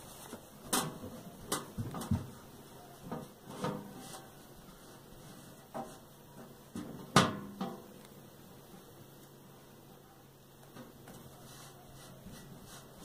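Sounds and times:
knocks and taps on sheet metal: 6.8 - 7.9.

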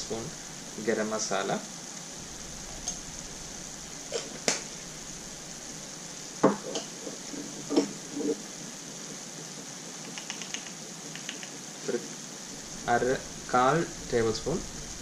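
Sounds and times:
food sizzling in a pan: 0.0 - 15.0
small ticks: 10.0 - 12.0.

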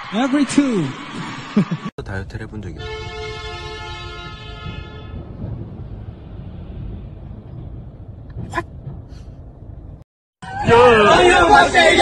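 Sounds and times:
vehicle cabin rumble: 4.2 - 10.0.

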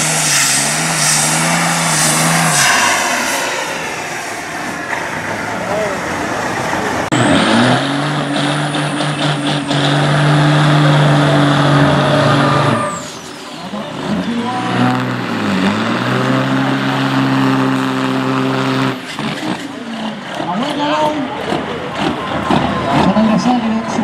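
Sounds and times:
high turbo whistle: 0.0 - 5.8, 11.6 - 13.4
diesel truck engine revving: 0.0 - 24.0.

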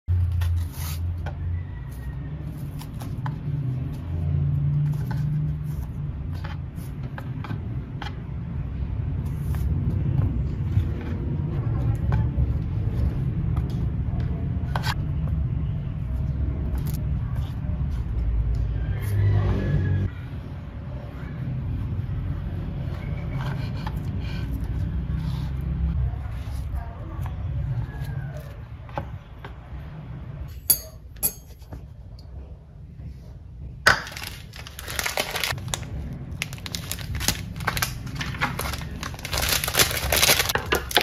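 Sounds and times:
kitchen utensils and dishes clicking: 30.5 - 31.6.

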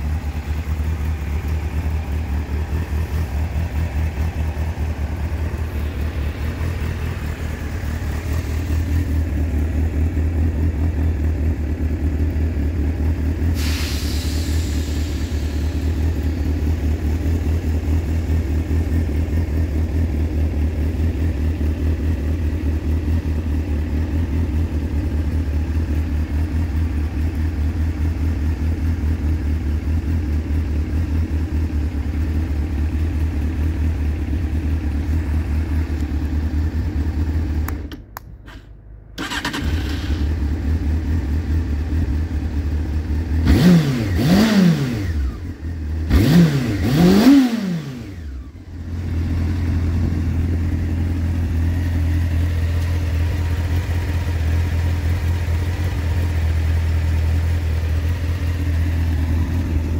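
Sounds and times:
motorcycle engine idling: 0.0 - 59.9
hiss falling in pitch: 13.6 - 15.8.

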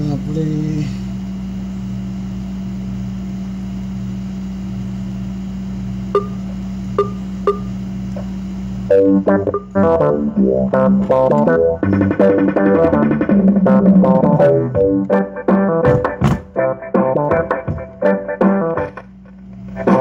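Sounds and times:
steady low hum: 0.0 - 20.0
instrumental track through subwoofer: 8.9 - 20.0.

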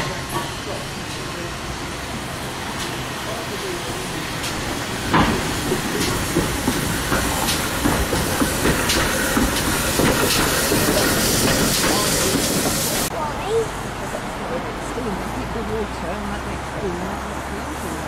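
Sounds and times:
locomotive exhaust beats: 0.0 - 13.1
steam hissing: 0.0 - 13.1.

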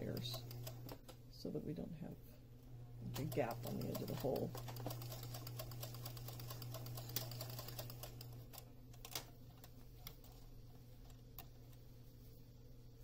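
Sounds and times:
sewing machine motor hum: 0.0 - 1.0, 3.0 - 9.1
sewing machine needle clatter: 0.0 - 1.1, 3.1 - 10.4
sewing machine clicks: 0.0 - 1.2, 3.2 - 10.4.

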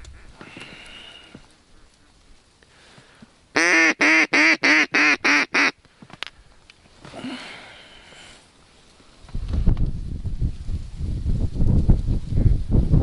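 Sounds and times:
duck call quacks: 3.6 - 5.8.

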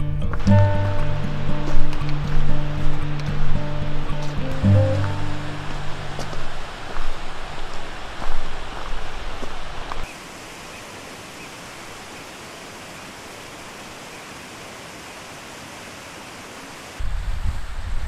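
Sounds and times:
steady rushing hiss: 0.4 - 18.0
wind rumble on microphone: 17.0 - 18.0.

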